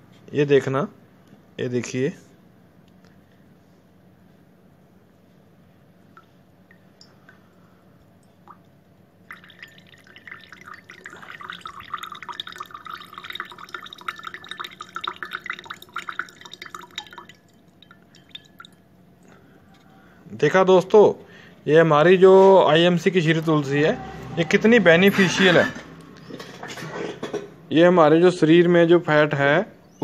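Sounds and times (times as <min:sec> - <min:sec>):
water trickling into a glass: 0:08.1 - 0:19.4.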